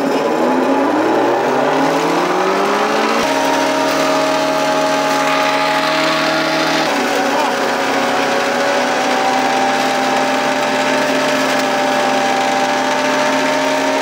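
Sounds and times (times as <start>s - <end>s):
hammer mill running: 0.0s - 14.0s.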